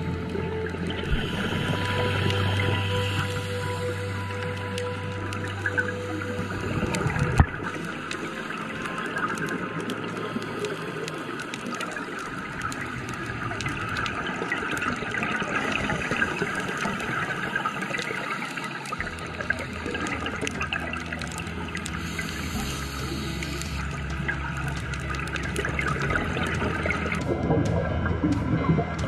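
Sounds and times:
low rumble: 0.0 - 8.7, 19.0 - 29.0
underwater regulator bubbles: 0.0 - 29.0
faint clicks: 0.1 - 29.0.

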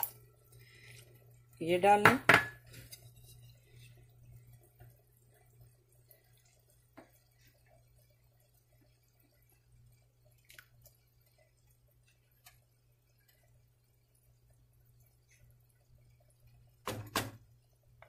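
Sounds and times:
low steady hum: 0.0 - 18.0
wooden spoon knocking metal pan: 2.0 - 2.6.

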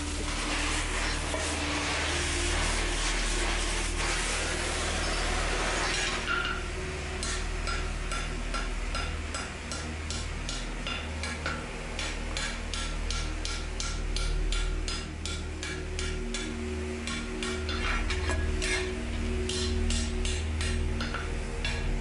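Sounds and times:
cutting torch hissing: 0.0 - 6.3
hammer striking hot steel: 4.8 - 22.0.

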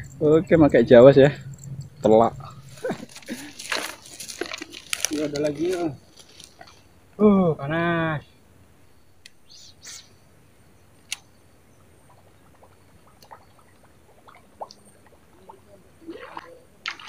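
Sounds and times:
sharp click: 11.1 - 11.3
faint water splashing: 11.8 - 17.0.

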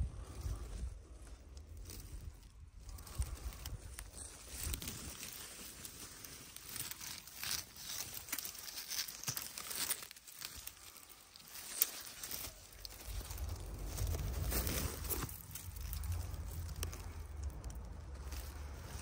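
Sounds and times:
dry twigs rustling and crackling: 0.0 - 19.0.

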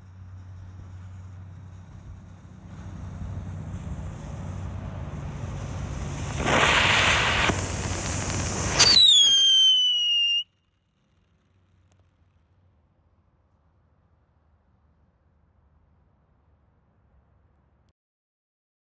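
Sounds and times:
hissing spray of sparks: 0.0 - 10.4
firework hissing: 0.0 - 10.5
falling firework whistle: 5.5 - 10.6.

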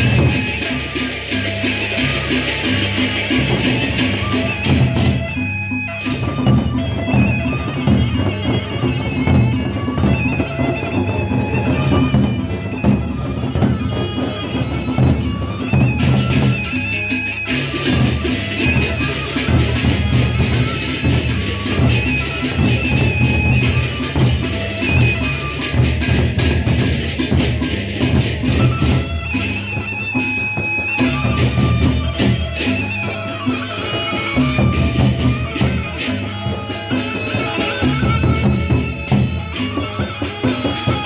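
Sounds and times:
fast clashing metal percussion: 0.0 - 41.0
large barrel drums beaten: 17.5 - 32.8.

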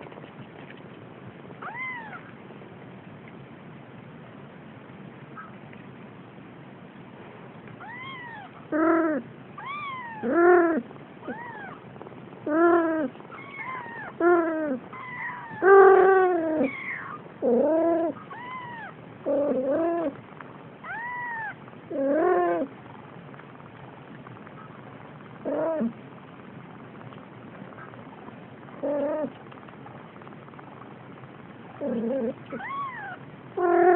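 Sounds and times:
kittens meowing: 1.6 - 2.4, 7.8 - 11.8, 12.5 - 20.2, 20.8 - 22.7, 31.8 - 33.9.

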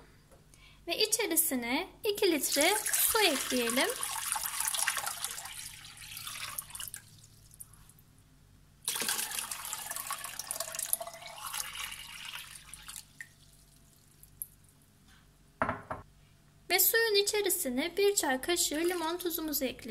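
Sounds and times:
water pouring into a bowl: 2.5 - 7.7, 8.9 - 14.5, 18.6 - 19.4.

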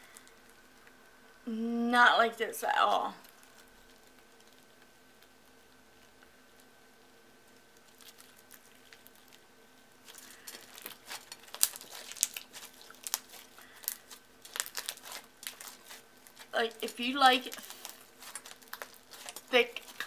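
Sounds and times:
faint steady hum: 0.0 - 20.0
slime squeezed by hand crackling: 10.0 - 20.0.

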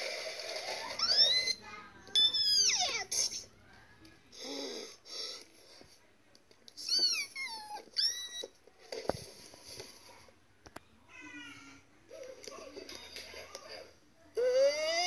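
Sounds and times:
squeaky whimpering cries: 2.2 - 3.3, 6.8 - 8.5, 14.4 - 15.0.

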